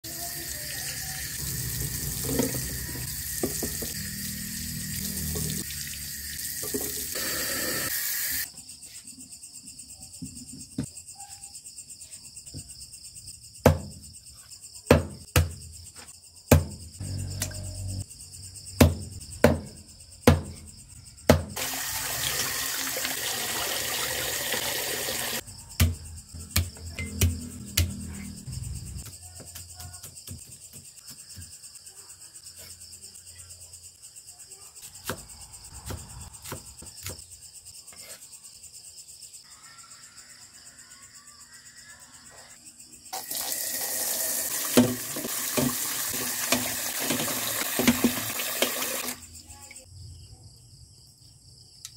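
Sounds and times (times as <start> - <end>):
tap water running: 0.1 - 8.4, 21.6 - 25.4, 43.2 - 49.2
crickets chirping: 0.1 - 51.9.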